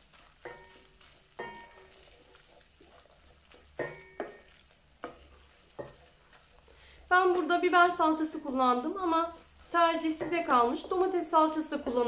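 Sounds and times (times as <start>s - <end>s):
faint sizzle: 0.0s - 12.0s
spoon knocking metal pot: 0.4s - 1.9s, 3.8s - 5.2s, 10.0s - 11.0s.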